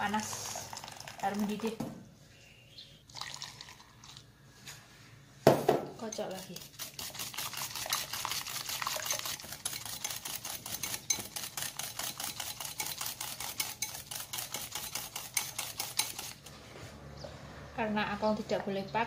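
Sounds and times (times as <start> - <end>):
whisk clicking against bowl: 6.0 - 16.4.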